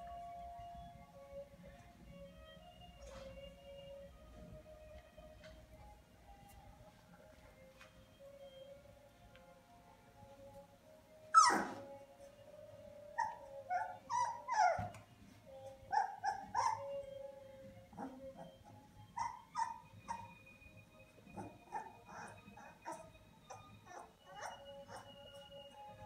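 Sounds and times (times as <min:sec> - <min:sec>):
puppies crying: 0:11.3 - 0:11.9, 0:13.2 - 0:15.0, 0:15.9 - 0:17.1, 0:17.9 - 0:20.5, 0:21.3 - 0:26.0
puppy squeal: 0:11.3 - 0:11.9, 0:13.2 - 0:15.0, 0:15.9 - 0:17.0, 0:19.1 - 0:20.4, 0:21.4 - 0:25.2
high-pitched squeaks and whimpers: 0:11.3 - 0:26.0.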